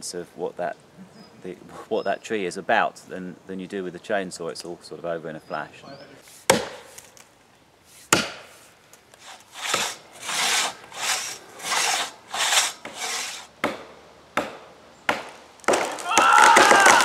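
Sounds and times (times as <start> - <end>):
crosscut saw rasping: 9.2 - 13.5.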